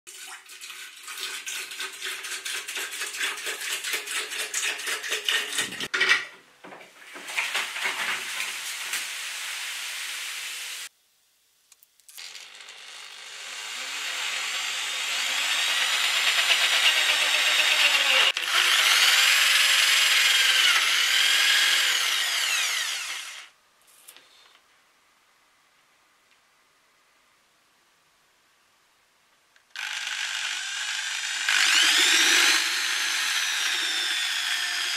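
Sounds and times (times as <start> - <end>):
power drill cutting melon rind: 12.1 - 23.5, 29.7 - 34.9.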